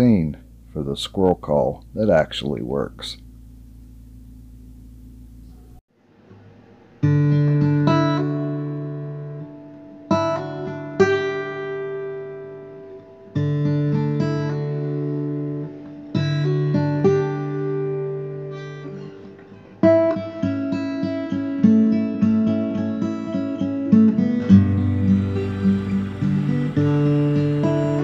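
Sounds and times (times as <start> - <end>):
acoustic guitar music: 6.3 - 28.0.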